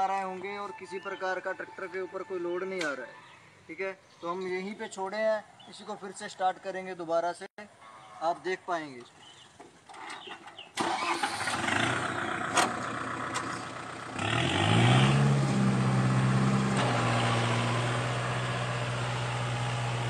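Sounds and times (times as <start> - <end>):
tractor diesel engine running: 10.8 - 14.3, 15.3 - 20.0.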